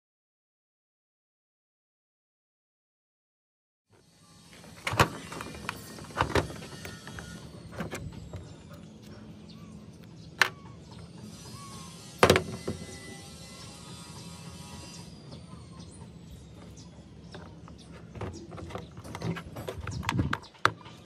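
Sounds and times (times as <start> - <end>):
low background hum: 4.2 - 21.0.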